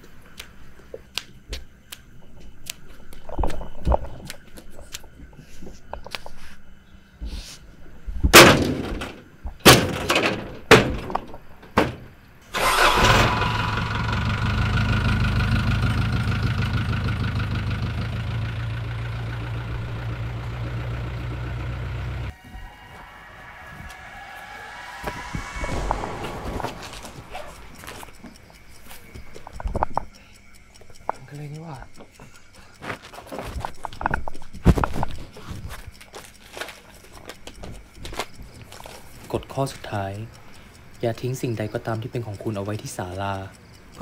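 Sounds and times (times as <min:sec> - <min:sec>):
truck engine running: 0:12.6 - 0:22.3
footsteps: 0:22.4 - 0:29.5.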